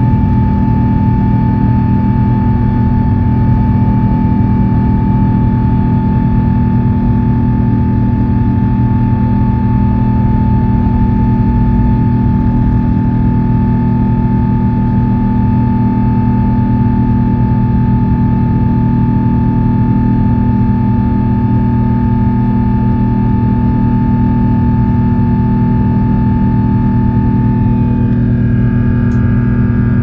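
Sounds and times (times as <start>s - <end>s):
constant high whine: 0.0s - 30.0s
jet engines droning in cabin: 0.0s - 30.0s.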